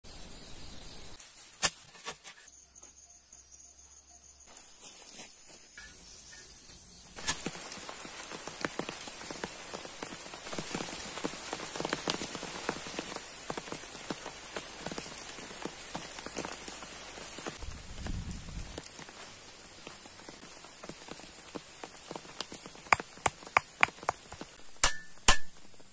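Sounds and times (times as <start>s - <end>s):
rain pattering on leaves: 7.1s - 24.6s.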